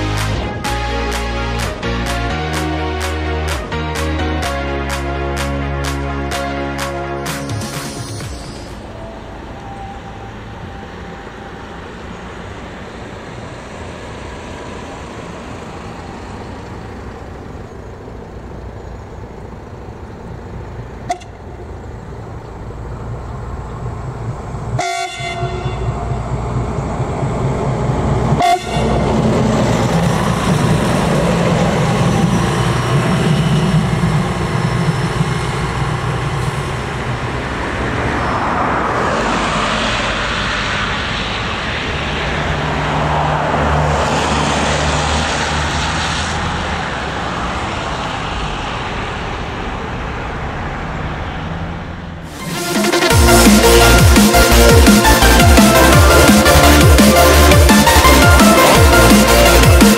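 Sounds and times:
diesel railcar running: 0:00.0 - 0:59.9
train horn: 0:21.1 - 0:21.4, 0:24.8 - 0:26.2, 0:28.3 - 0:29.4.

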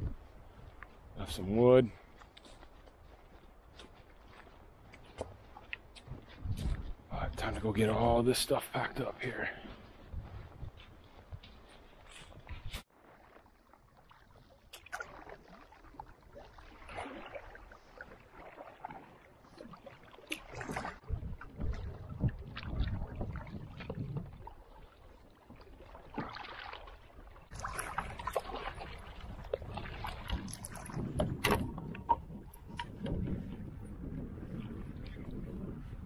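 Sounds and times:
wind buffeting microphone: 0:00.0 - 0:12.9, 0:20.5 - 0:25.6, 0:27.5 - 0:36.0
paddle strokes swishing and splashing: 0:02.0 - 0:06.9, 0:09.7 - 0:36.0
water slapping against hull: 0:12.6 - 0:35.7.

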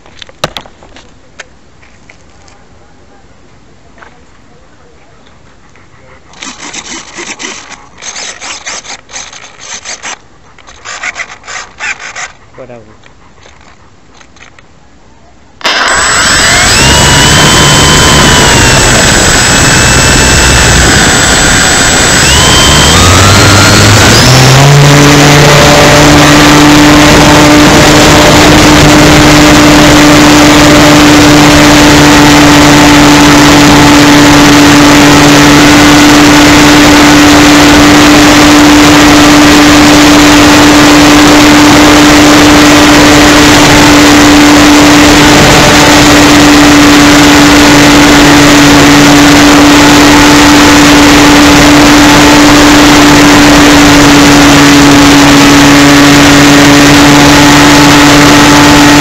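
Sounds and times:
model airplane motor droning: 0:06.3 - 0:12.4, 0:15.6 - 0:59.0
rushing wind: 0:15.6 - 0:59.0
vibration noise: 0:15.6 - 0:59.0.

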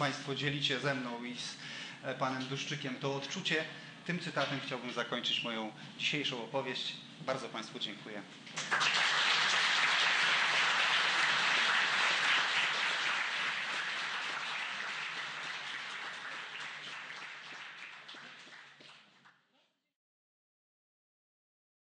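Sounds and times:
audience applauding: 0:08.6 - 0:19.3.

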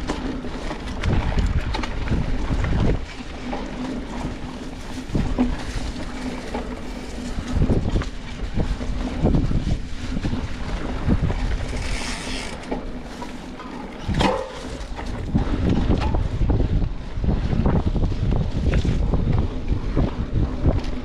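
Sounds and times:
bike jolts: 0:00.0 - 0:21.0
bike tyres rumbling on dirt: 0:00.0 - 0:21.0
wind rushing over microphone: 0:00.9 - 0:13.1, 0:13.9 - 0:21.0
bike frame rattling: 0:11.0 - 0:16.5.

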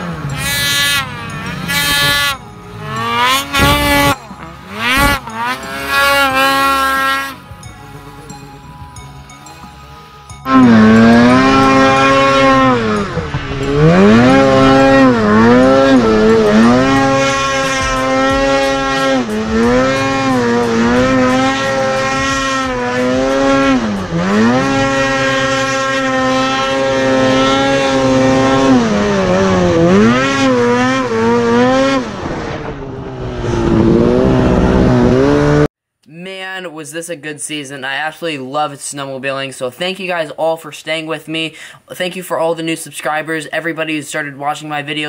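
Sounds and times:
snowmobile engine revving: 0:00.0 - 0:08.4, 0:10.4 - 0:35.7.

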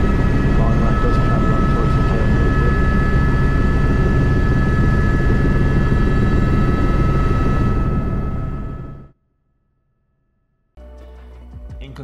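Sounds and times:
helicopter rotor and engine: 0:00.0 - 0:09.1
high turbine whine: 0:00.0 - 0:09.1.

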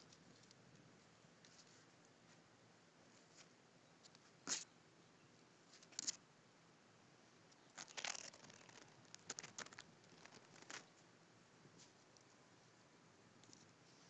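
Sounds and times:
small clicks: 0:07.5 - 0:10.9
plastic bag crinkling: 0:07.8 - 0:10.9.

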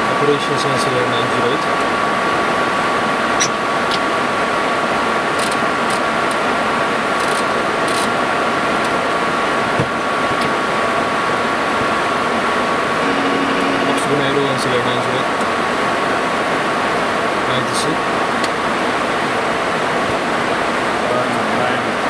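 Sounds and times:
thin steady whine: 0:12.4 - 0:16.4.

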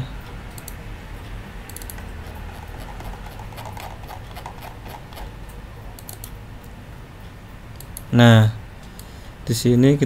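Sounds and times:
low steady hum: 0:00.0 - 0:10.0
computer mouse clicks: 0:00.5 - 0:00.8, 0:01.7 - 0:05.3, 0:06.0 - 0:06.4.

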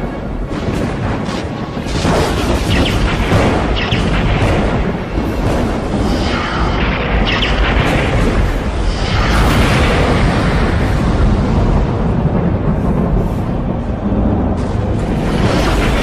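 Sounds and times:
rumbling thunder: 0:00.0 - 0:16.0.

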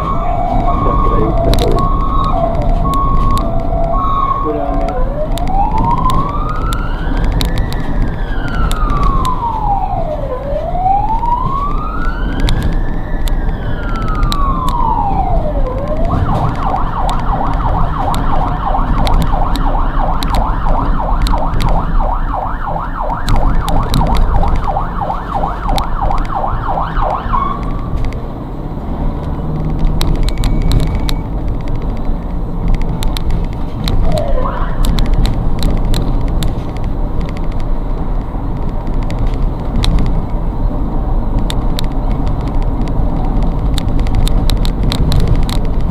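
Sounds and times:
siren warbling yelp: 0:00.0 - 0:27.7, 0:34.0 - 0:35.0
siren chirp: 0:00.0 - 0:28.8, 0:30.0 - 0:31.4, 0:34.0 - 0:35.0
ambulance siren wailing: 0:00.0 - 0:36.6
engine and road noise: 0:00.0 - 0:45.9.

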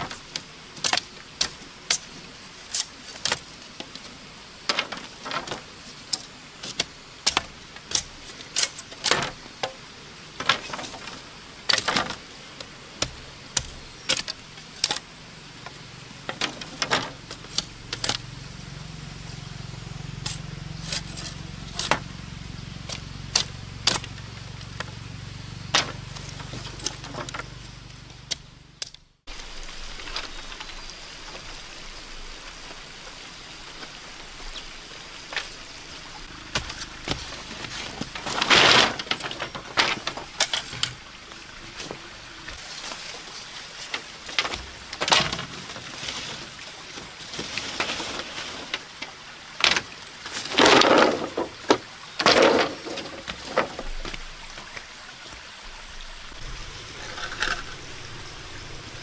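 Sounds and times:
machete chopping bamboo: 0:06.6 - 0:09.8, 0:13.0 - 0:15.0
low hum: 0:55.6 - 0:59.0.

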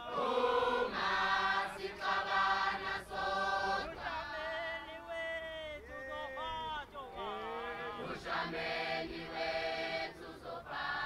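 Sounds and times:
group of voices chanting: 0:07.1 - 0:11.0.

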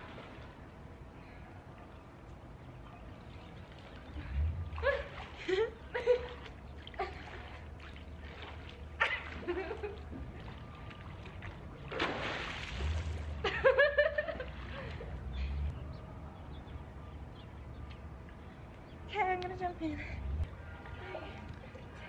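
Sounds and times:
pool water splashing: 0:00.0 - 0:01.1, 0:02.7 - 0:15.6.

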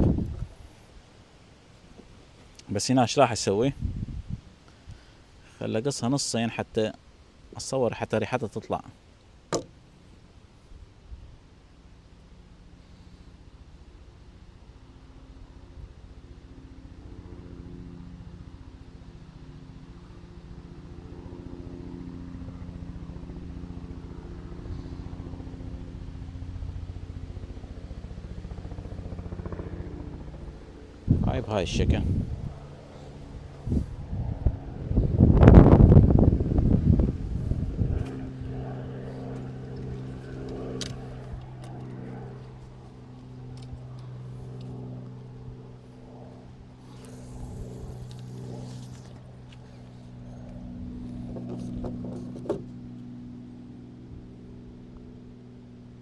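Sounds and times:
wind buffeting microphone: 0:00.0 - 0:00.6, 0:03.7 - 0:04.5, 0:31.0 - 0:32.7, 0:33.5 - 0:42.3
engine running steadily: 0:12.1 - 0:56.0.

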